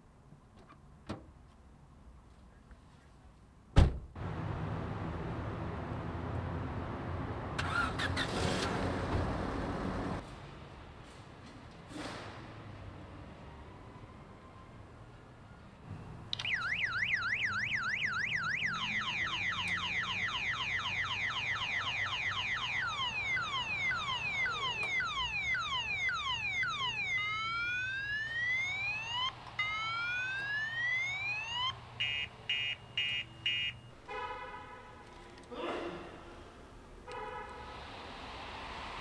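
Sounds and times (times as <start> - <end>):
car alarm siren: 16.3 - 34.1.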